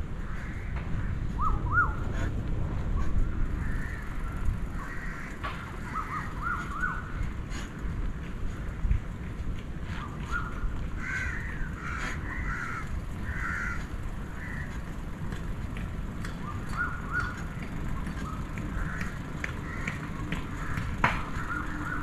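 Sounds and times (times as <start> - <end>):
crows cawing: 0.2 - 1.9, 3.6 - 7.3, 10.3 - 15.3, 18.2 - 22.0.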